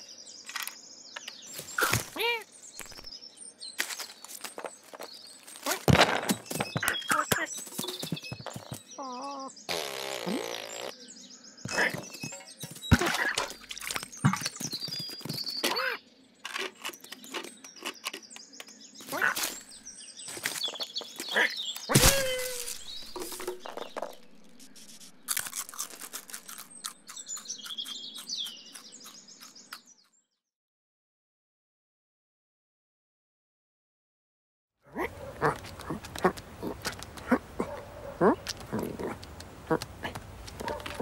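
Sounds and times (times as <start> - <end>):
birds chirping: 0.0 - 30.3, 34.9 - 41.0
cartoon scrabbling and thumps: 5.6 - 8.9, 21.9 - 24.3.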